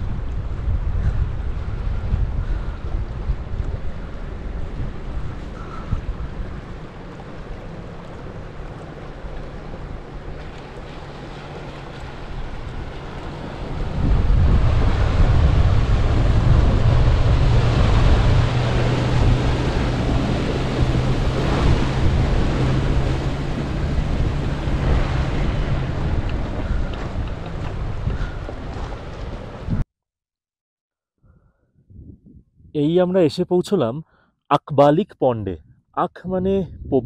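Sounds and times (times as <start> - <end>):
rushing wind: 0.0 - 29.8, 31.2 - 32.8, 35.5 - 37.0
road noise: 2.7 - 29.7
vehicle engine hum: 3.6 - 29.7.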